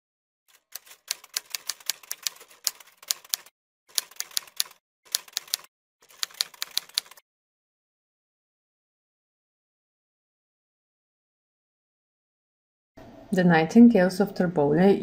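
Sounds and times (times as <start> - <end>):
typewriter keys clacking: 0.5 - 7.2.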